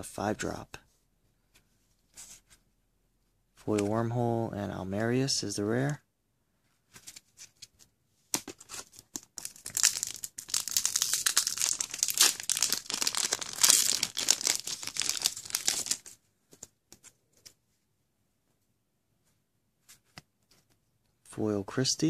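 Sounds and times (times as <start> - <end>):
foil wrapper crinkling and tearing: 8.8 - 16.1.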